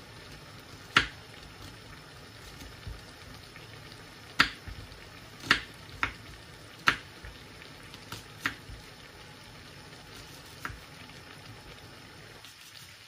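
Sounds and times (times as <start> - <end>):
knife chopping on wooden board: 4.4 - 4.8, 5.4 - 6.2, 6.8 - 7.4, 10.5 - 10.8.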